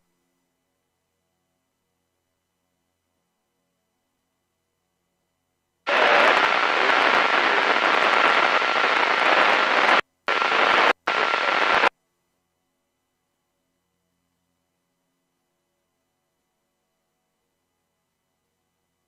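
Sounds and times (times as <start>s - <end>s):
radio static hiss: 5.9s - 11.9s.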